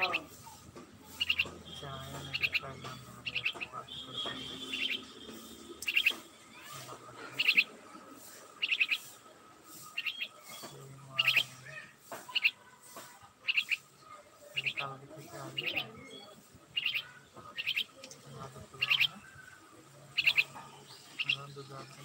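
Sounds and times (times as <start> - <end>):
myna chirping: 0.0 - 22.0
high bird whistle: 3.3 - 6.2.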